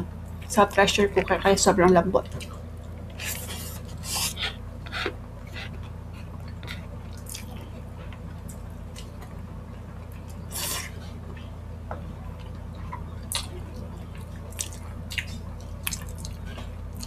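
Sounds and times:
steady low hum: 0.0 - 17.0
lip smacks and chewing: 2.3 - 9.3, 12.4 - 17.0.

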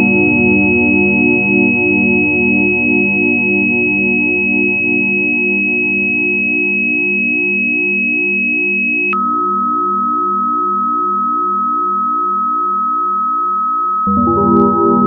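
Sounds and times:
steady high electronic tone: 3.8 - 12.1, 14.1 - 15.0
organ-like chord: 14.1 - 15.0
pulsing low synthesizer chords: 14.1 - 15.0.

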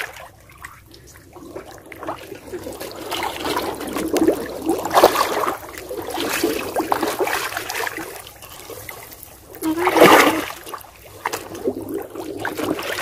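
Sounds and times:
water sloshing and splashing: 0.0 - 13.0
water streaming off basket: 9.6 - 10.8.

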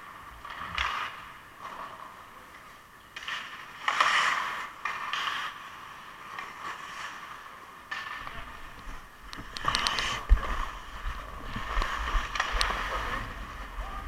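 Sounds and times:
ice skate blades scraping ice: 3.2 - 8.2
sharp clicks: 9.3 - 10.2.

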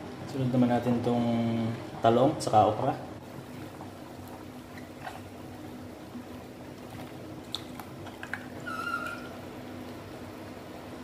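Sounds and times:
faint liquid sounds: 2.9 - 10.1
short high squeak: 8.6 - 9.4.

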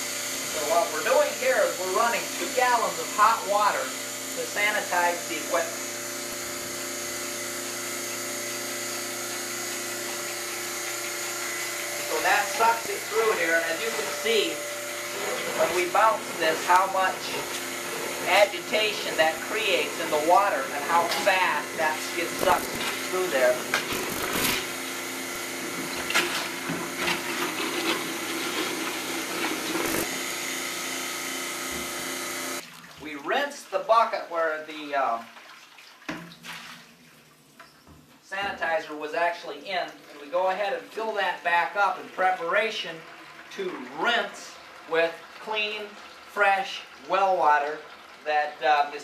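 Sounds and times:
vacuum pump humming: 0.0 - 32.8.

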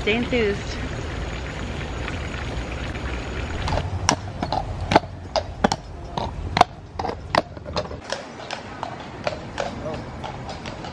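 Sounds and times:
hooves clip-clopping on pavement: 3.5 - 10.9.

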